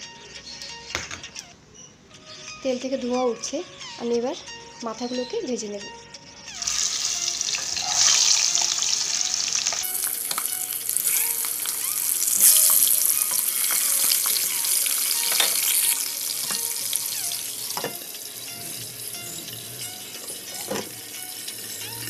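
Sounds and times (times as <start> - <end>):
fish heads sizzling in oil: 6.6 - 22.0.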